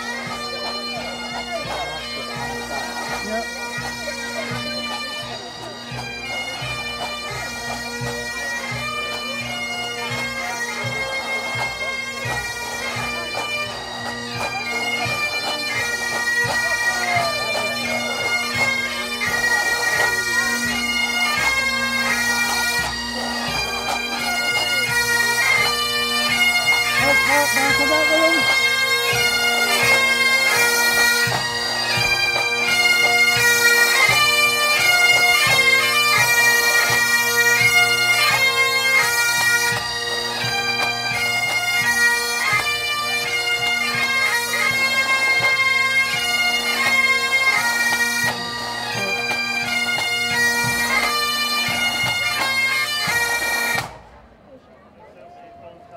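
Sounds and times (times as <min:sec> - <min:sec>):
bagpipes playing: 0:00.0 - 0:54.0
drums beating: 0:26.8 - 0:29.3.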